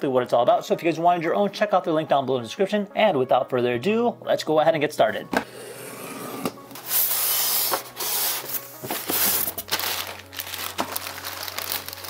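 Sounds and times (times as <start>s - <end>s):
blade slitting packing tape: 6.7s - 12.0s
plastic bags crinkling: 8.4s - 12.0s.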